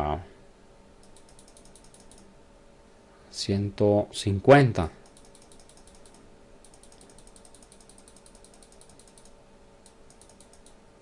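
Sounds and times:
mouse button clicking rapidly: 0:01.0 - 0:02.3, 0:05.0 - 0:10.8.

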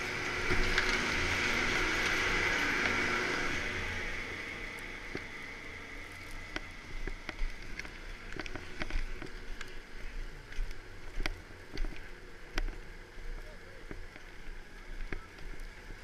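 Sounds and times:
skis and poles clicking on snow: 0:06.0 - 0:16.0.

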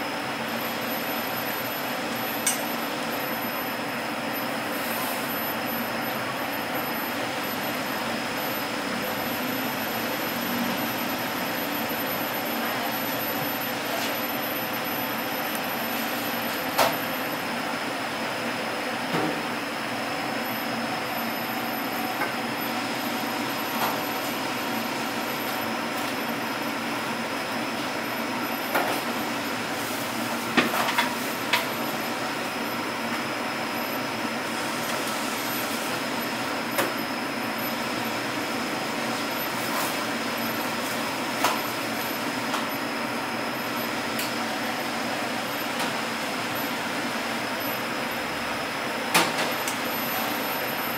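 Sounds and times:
high-pitched whine: 0:00.0 - 0:17.8
kitchen machinery humming: 0:00.0 - 0:50.9.

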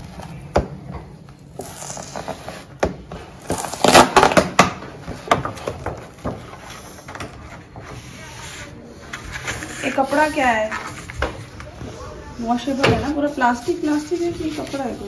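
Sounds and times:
plastic packaging crinkling: 0:03.4 - 0:04.6.

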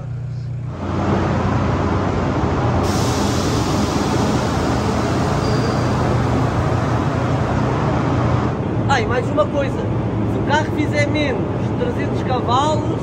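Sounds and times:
diesel engine running loud: 0:00.0 - 0:08.9.

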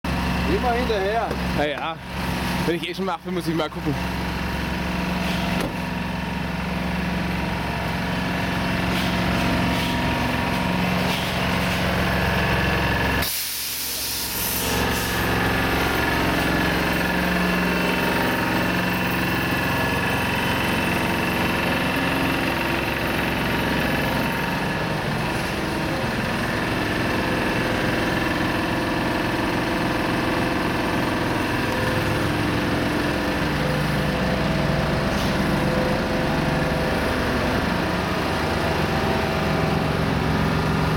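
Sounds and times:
truck diesel engine running: 0:00.0 - 0:40.9
compressed air hiss: 0:13.2 - 0:15.3.

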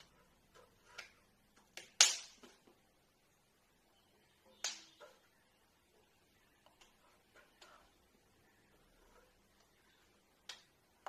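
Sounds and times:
hands slapping and clapping: 0:01.0 - 0:02.5.

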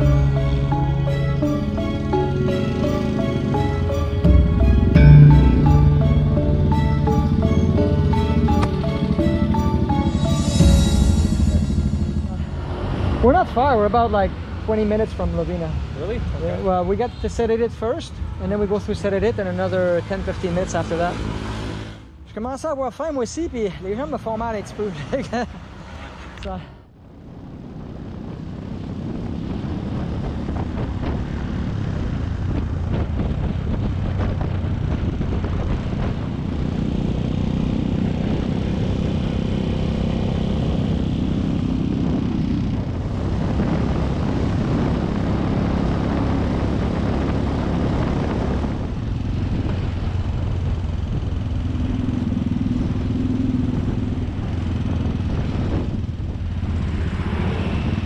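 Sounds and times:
motorcycle engine running: 0:00.0 - 0:14.1, 0:27.3 - 0:57.3
road noise: 0:00.0 - 0:58.0.

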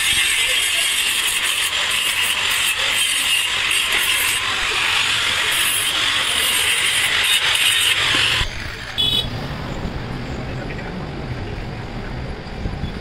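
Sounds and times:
angle grinder grinding metal: 0:00.0 - 0:09.0.

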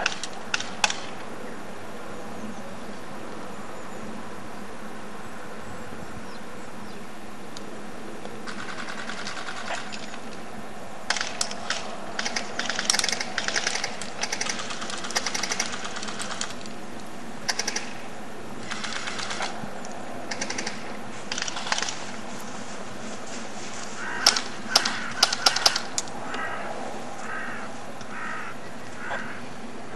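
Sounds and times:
background hiss: 0:00.0 - 0:29.9
airsoft guns firing bursts: 0:08.4 - 0:10.1, 0:11.1 - 0:16.6, 0:17.5 - 0:18.0, 0:18.6 - 0:19.6, 0:20.3 - 0:22.0, 0:24.2 - 0:25.9.

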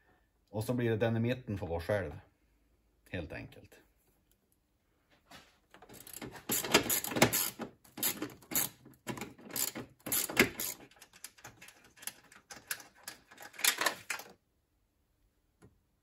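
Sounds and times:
crimping pliers clicking and rasping: 0:06.0 - 0:14.3.

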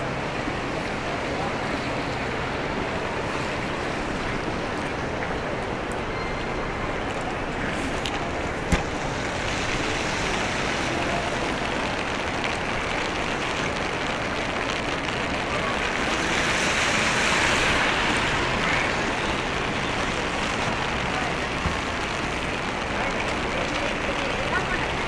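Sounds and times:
wet city street noise: 0:00.0 - 0:25.0
rain hiss: 0:07.4 - 0:25.0.

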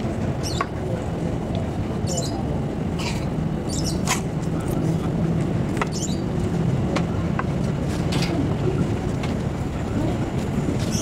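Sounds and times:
electric train rumbling: 0:00.0 - 0:11.0
train clicks and squeaks: 0:05.4 - 0:11.0.

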